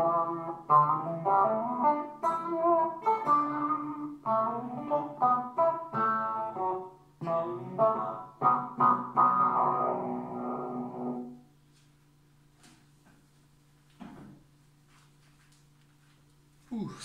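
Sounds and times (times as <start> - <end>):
distorted electric guitar: 0.0 - 11.4.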